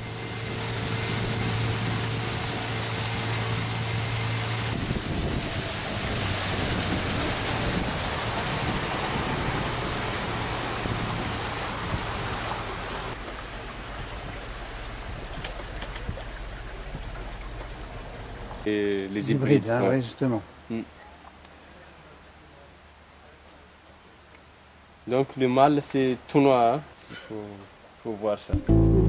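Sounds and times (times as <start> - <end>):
boat motor humming: 0.0 - 18.7, 28.6 - 29.0
rushing water and wind: 0.0 - 20.9.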